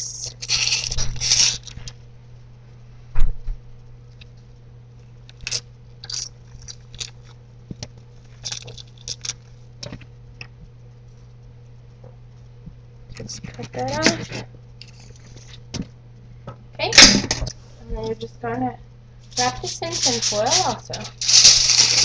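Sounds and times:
onion skin crackling and rustling: 0.0s - 2.0s, 8.0s - 9.6s, 19.2s - 22.0s
peel rustles and taps: 5.3s - 10.7s.

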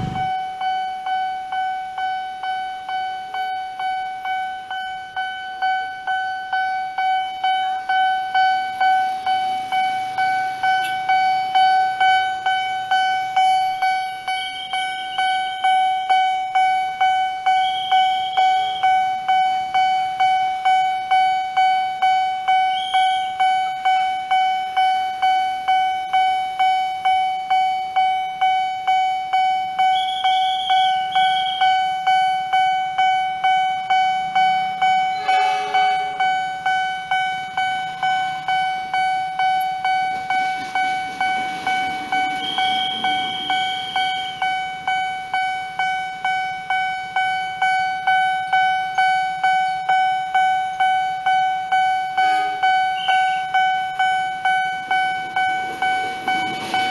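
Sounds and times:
level crossing bell ringing: 0.0s - 56.9s
short horn: 35.2s - 36.3s.

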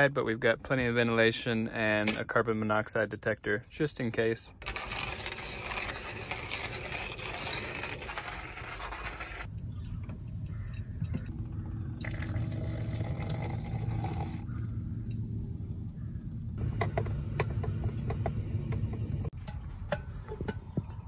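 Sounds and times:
low steady hum: 9.5s - 21.0s
hot water pouring: 12.0s - 14.4s.

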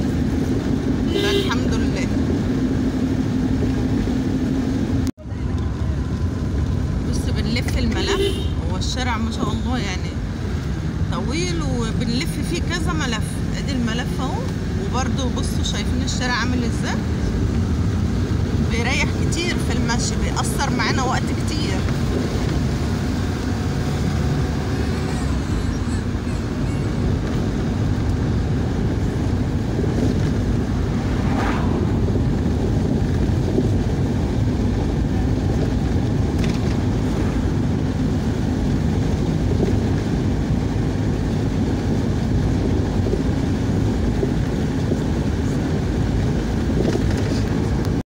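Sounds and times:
car engine and road noise: 0.0s - 48.0s.

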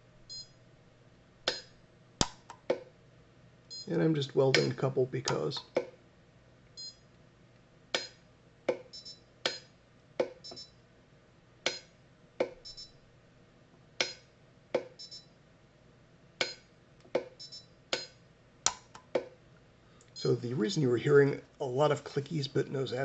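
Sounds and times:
faint high beeps: 6.8s - 7.0s, 8.9s - 9.3s, 10.4s - 10.8s, 12.6s - 13.0s, 15.0s - 15.3s, 17.4s - 17.7s, 20.2s - 20.4s
welder sharp clicks: 17.9s - 19.3s.

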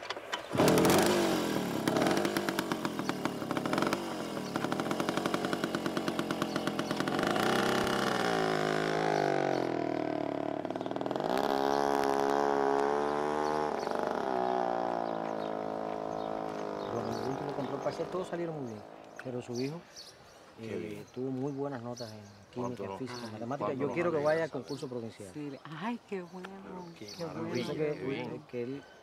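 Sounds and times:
small motorcycle engine accelerating: 0.0s - 19.0s.

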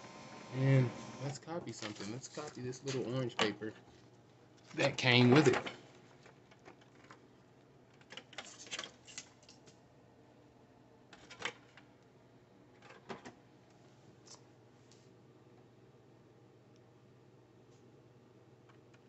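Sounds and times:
paper handling: 1.7s - 3.2s.

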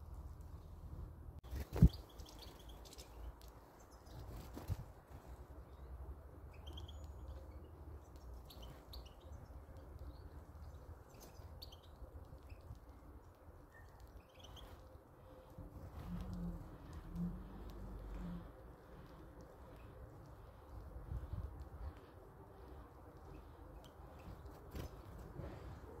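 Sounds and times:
faint low rumble: 0.0s - 1.7s, 3.0s - 26.0s
goldfinches chirping: 1.8s - 4.1s, 6.5s - 12.8s, 13.8s - 15.5s.

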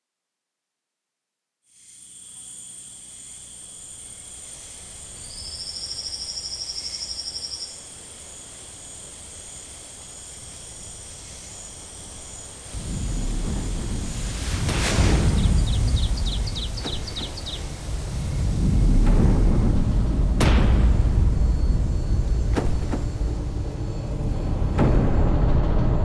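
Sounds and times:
insects chirring: 1.7s - 25.3s
rapid insect trill: 1.7s - 25.3s
loud low noise: 12.7s - 26.0s.

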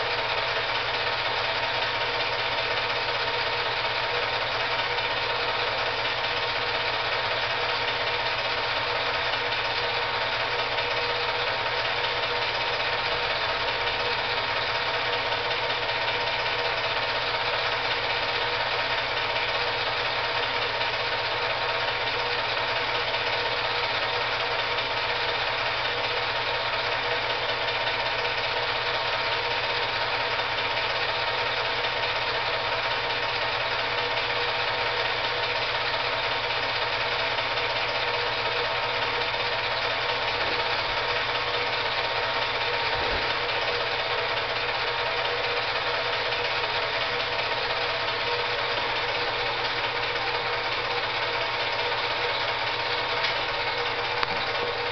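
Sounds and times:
film projector whirring and rattling: 0.0s - 54.9s.

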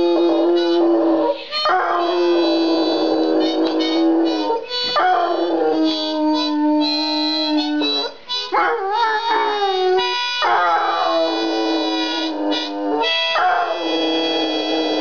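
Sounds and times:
hound dog howling: 0.0s - 15.0s.

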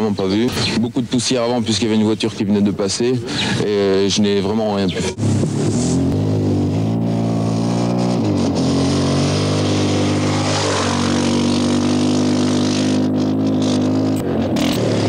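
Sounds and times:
rally car engine running hard: 5.2s - 15.0s.

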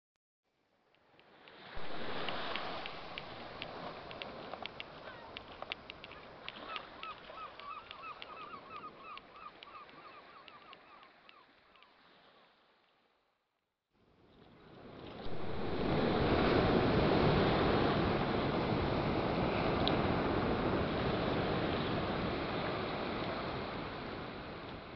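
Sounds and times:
sea ambience hiss: 1.0s - 10.1s, 15.0s - 24.9s
ocean surf: 1.1s - 12.7s, 14.6s - 24.9s
seagulls calling: 4.9s - 12.0s.

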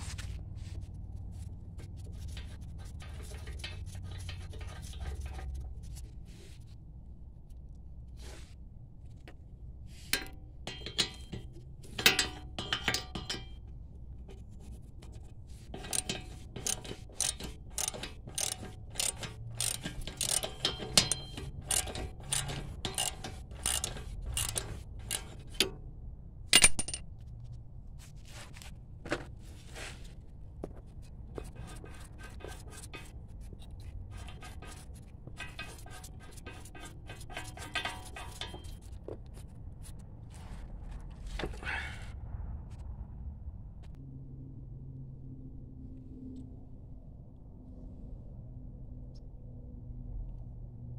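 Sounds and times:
metal clank: 10.1s - 13.7s, 15.8s - 25.8s, 34.1s - 39.0s
hand ratchet clicking: 15.8s - 25.7s, 34.1s - 38.9s.

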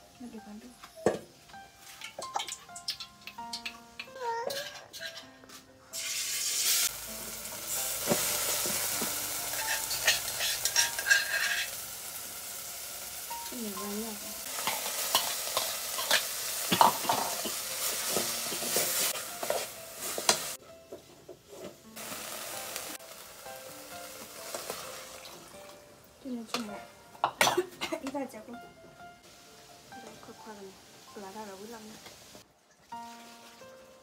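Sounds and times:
food sizzling in a pan: 5.9s - 20.6s, 21.4s - 28.4s, 29.2s - 34.0s
utensil scraping a pan: 9.5s - 11.7s.

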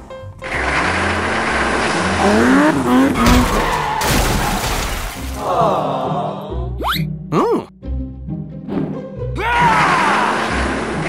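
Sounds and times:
tyres skidding: 0.0s - 5.6s.

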